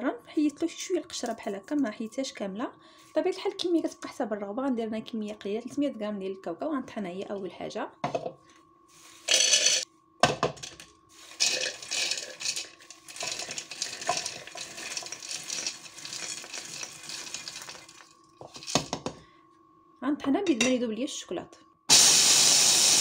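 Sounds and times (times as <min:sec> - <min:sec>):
peanuts rattling in plastic bowl: 0:09.3 - 0:09.8, 0:10.6 - 0:19.1.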